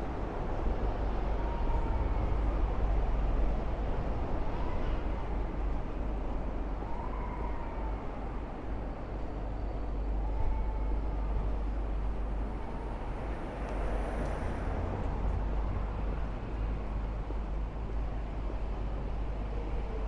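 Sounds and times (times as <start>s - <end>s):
passing vehicles: 11.3s - 20.0s.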